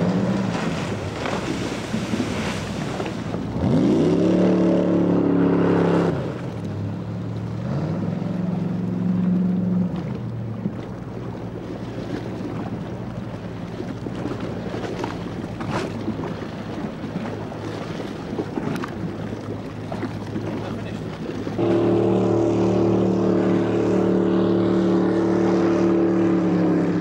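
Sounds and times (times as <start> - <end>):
boat engine revving: 0.0 - 27.0
rushing water: 0.0 - 27.0
wind: 0.0 - 27.0.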